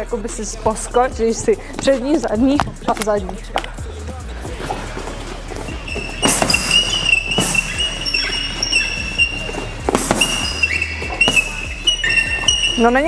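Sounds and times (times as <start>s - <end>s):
background music: 0.0s - 13.0s
gloves punching heavy bag: 5.6s - 13.0s.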